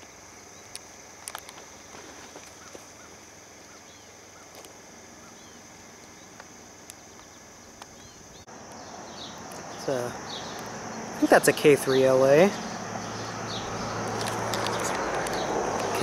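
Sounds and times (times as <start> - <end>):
high-pitched insect drone: 0.0 - 16.0
bird chirps: 7.0 - 16.0
sharp clicks: 14.1 - 16.0.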